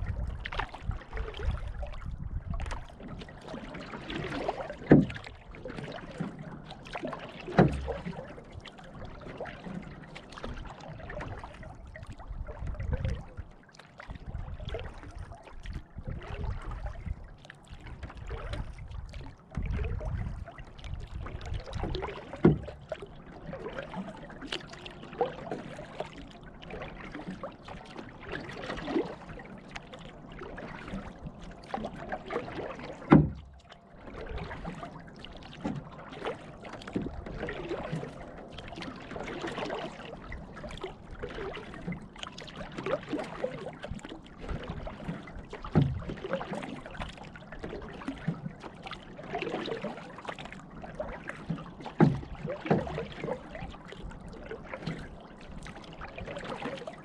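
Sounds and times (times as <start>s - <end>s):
water dripping and gurgling: 0.0s - 57.0s
thumps on canoe: 4.3s - 6.1s, 7.0s - 8.2s, 21.2s - 23.0s, 32.5s - 33.7s, 45.6s - 46.5s, 51.8s - 53.2s.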